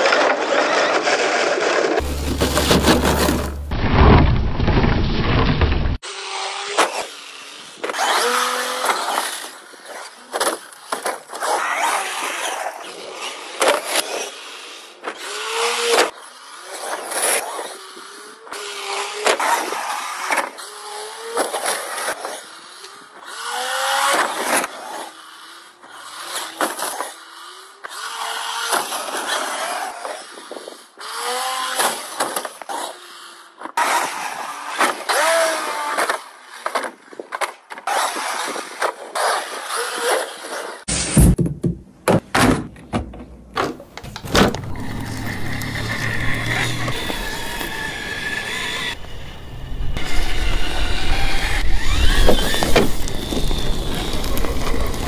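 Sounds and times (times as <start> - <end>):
rc truck motor revving: 0.0 - 3.7, 6.0 - 40.9, 44.0 - 55.0
tyres crunching on dirt: 2.0 - 6.0, 43.7 - 55.0.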